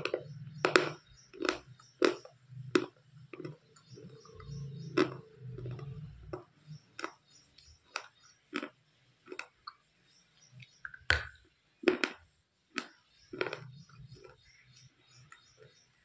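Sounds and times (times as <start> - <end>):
chewing a hard stick: 0.0 - 9.8, 12.8 - 15.5.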